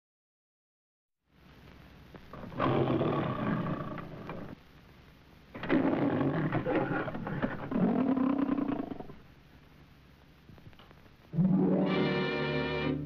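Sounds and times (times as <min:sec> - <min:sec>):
old film soundtrack hiss: 0:01.3 - 0:13.0
lion roaring: 0:02.3 - 0:04.6, 0:05.6 - 0:09.2.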